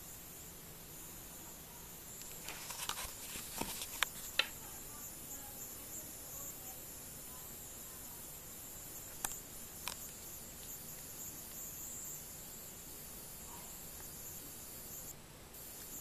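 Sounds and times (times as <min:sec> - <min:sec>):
faint steady hiss: 0:00.0 - 0:16.0
camera handling rustles and clicks: 0:02.2 - 0:04.5.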